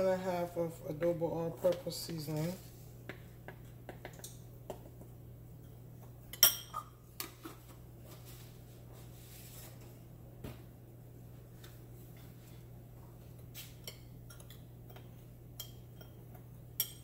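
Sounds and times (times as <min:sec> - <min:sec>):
steady low hum: 0:00.0 - 0:17.0
metal spoon clinking on glass: 0:06.3 - 0:06.9.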